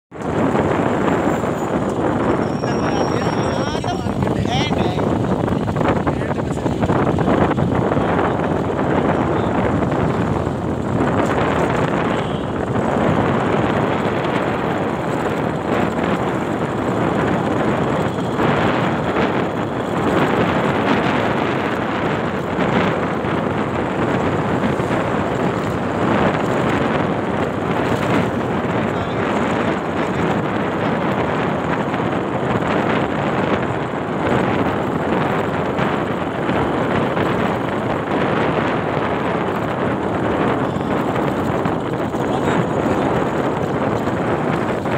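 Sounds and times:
road and vehicle noise: 0.1 - 44.9
wind buffeting microphone: 0.1 - 44.9.

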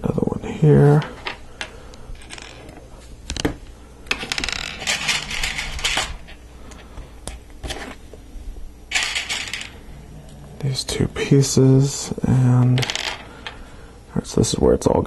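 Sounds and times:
plastic pieces rattling: 4.1 - 6.3, 8.9 - 9.8.

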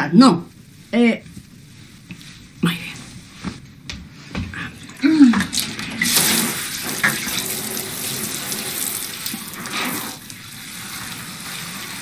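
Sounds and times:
tap water running into sink: 4.3 - 12.0.

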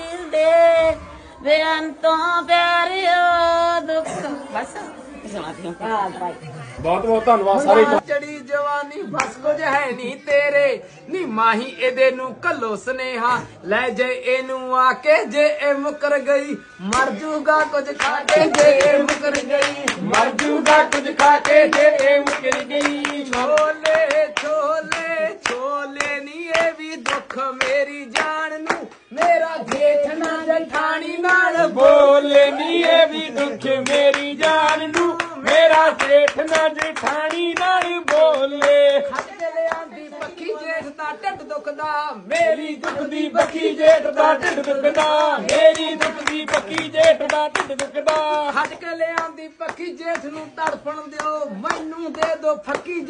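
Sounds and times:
rhythmic hand clapping: 9.1 - 10.6, 15.3 - 53.0.

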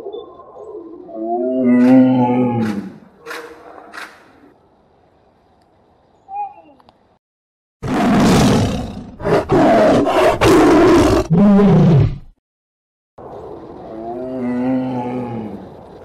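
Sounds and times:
tiger roaring: 7.8 - 12.3.

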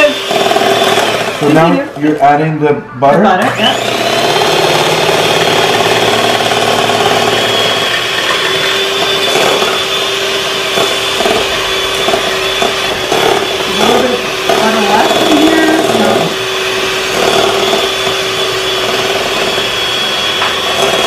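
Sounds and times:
electric hand mixer whining: 0.0 - 2.4, 3.2 - 21.0.

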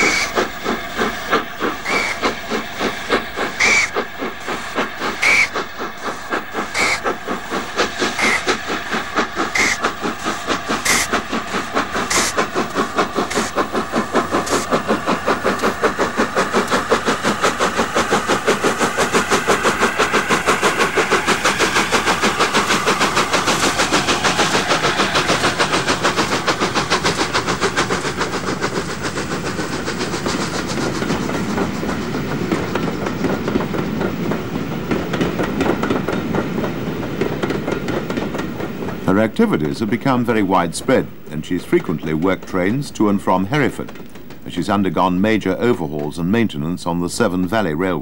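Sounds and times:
steam locomotive exhaust beats: 0.0 - 47.4
coaches rumbling and clattering: 30.8 - 47.2.

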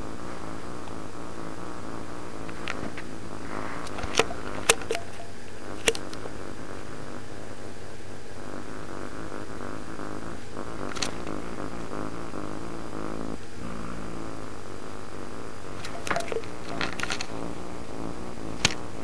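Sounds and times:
cat purring: 0.0 - 19.0
sharp clicks: 3.8 - 6.2, 10.9 - 11.3, 15.8 - 17.4.

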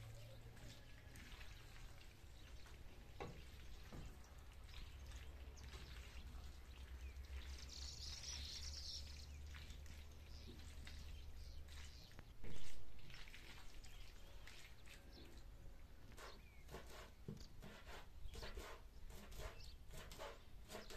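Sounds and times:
wooden spoon scraping a pan: 16.1 - 20.9.

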